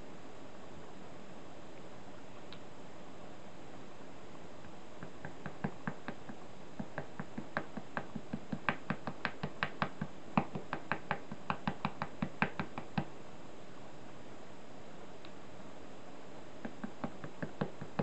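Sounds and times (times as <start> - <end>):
brush tip tapping on board: 4.6 - 13.1, 16.6 - 18.0.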